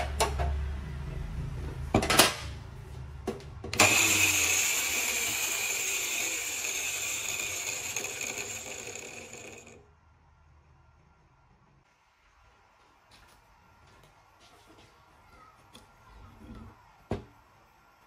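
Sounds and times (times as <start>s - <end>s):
angle grinder whining: 3.8s - 9.8s.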